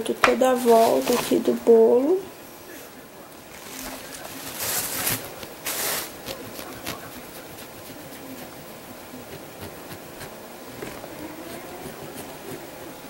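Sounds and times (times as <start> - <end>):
short rustle: 2.5 - 7.2.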